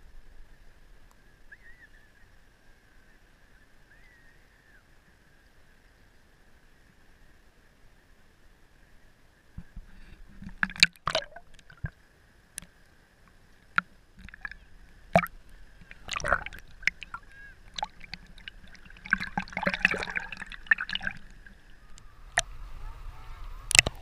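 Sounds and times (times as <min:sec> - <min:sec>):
water lapping and gurgling: 0:09.6 - 0:12.0, 0:13.6 - 0:24.0
water splashes and drips: 0:10.3 - 0:12.0, 0:12.6 - 0:24.0.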